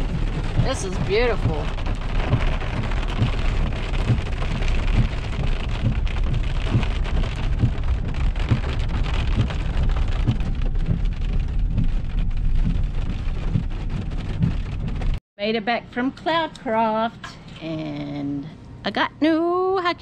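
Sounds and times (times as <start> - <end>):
rain on truck windshield: 0.0 - 15.2
truck rumble: 0.0 - 15.2
low bumps: 0.0 - 18.1.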